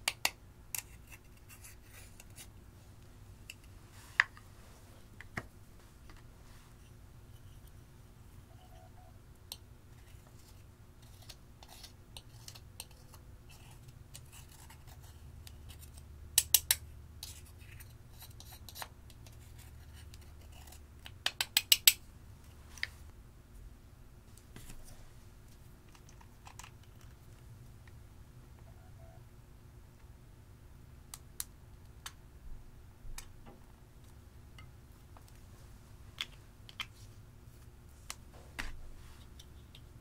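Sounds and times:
spatula scratching eyeshadow: 0.8s - 2.5s, 10.0s - 16.0s, 17.2s - 20.9s.

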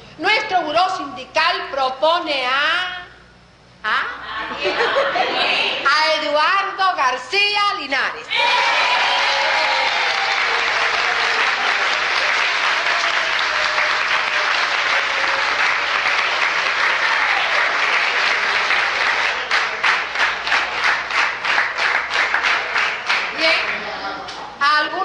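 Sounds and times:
audience applauding: 8.6s - 23.8s.

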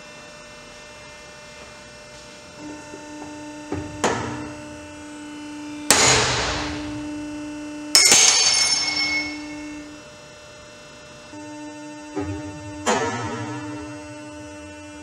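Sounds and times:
steady hum: 2.5s - 15.0s
carabiner breaking with loud bang: 8.0s - 9.6s.

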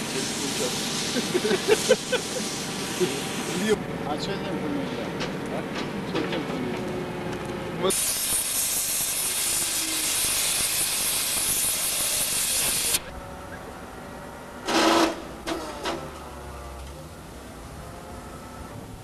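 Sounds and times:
gas cutting torch hissing: 0.0s - 3.8s, 7.9s - 13.1s
loud burst of noise: 7.9s - 13.2s, 14.6s - 16.3s.

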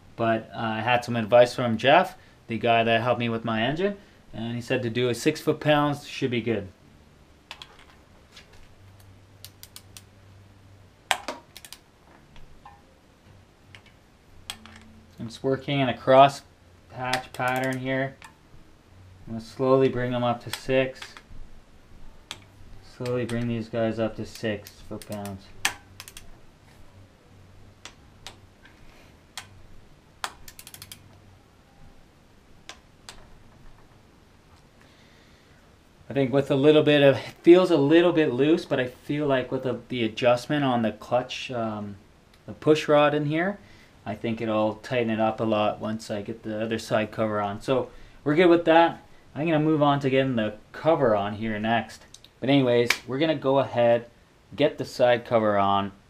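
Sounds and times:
torque wrench ratcheting clicks: 24.4s - 26.3s, 30.2s - 31.1s.

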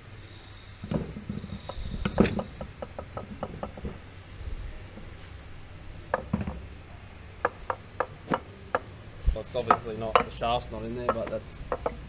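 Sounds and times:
metal knocks and clicks: 0.8s - 4.1s, 9.6s - 12.0s.

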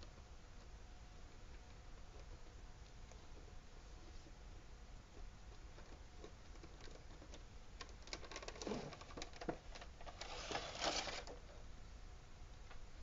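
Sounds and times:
plastic and cardboard crinkling: 8.1s - 11.4s
plastic tray sliding: 10.0s - 11.4s.

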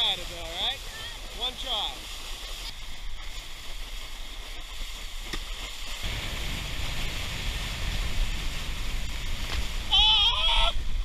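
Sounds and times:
water rushing and spraying: 0.0s - 11.0s
wind buffeting microphone: 5.9s - 11.0s.

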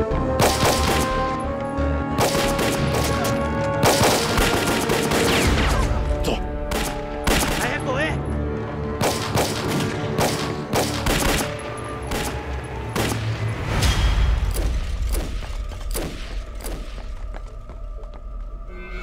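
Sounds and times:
dramatic music: 0.0s - 19.0s
rifle gunfire: 9.0s - 11.5s.

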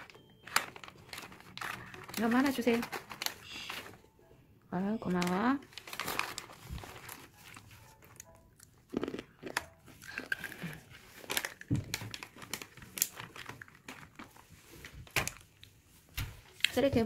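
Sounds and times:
plastic snack packet crinkling: 0.0s - 4.1s, 5.0s - 15.6s
child chewing crunchy snack: 5.8s - 14.3s.

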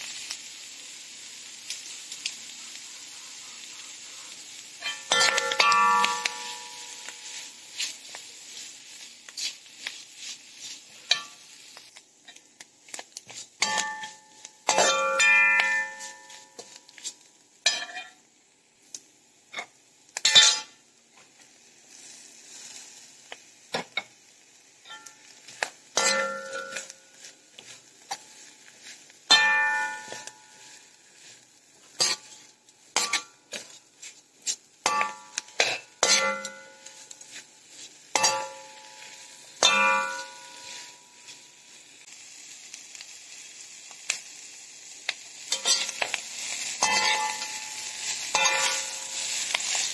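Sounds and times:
metal spatula scraping wok: 2.7s - 18.2s, 19.6s - 20.8s, 24.8s - 41.9s, 45.4s - 49.9s
wok ringing: 4.7s - 8.8s, 10.9s - 11.7s, 13.6s - 18.2s, 19.6s - 20.8s, 24.8s - 33.8s, 34.8s - 41.8s, 45.5s - 49.9s.

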